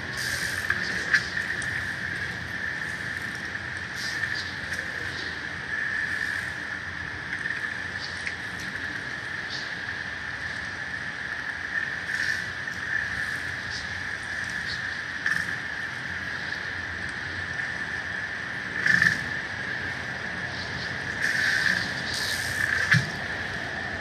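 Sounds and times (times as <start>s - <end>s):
faint ticks: 7.3s - 8.8s.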